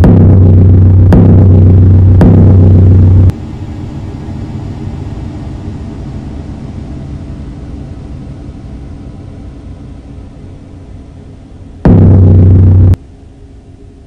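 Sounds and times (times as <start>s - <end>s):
sharp hit: 0.0s - 6.3s, 11.8s - 13.0s
loud low electronic drone: 0.0s - 13.9s
low rumbling noise: 0.0s - 14.0s.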